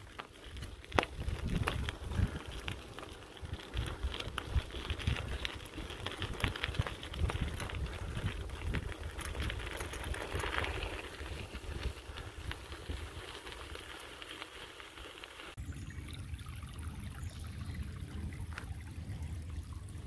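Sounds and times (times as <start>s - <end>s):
bicycle tyres crunching on gravel: 0.0s - 15.6s.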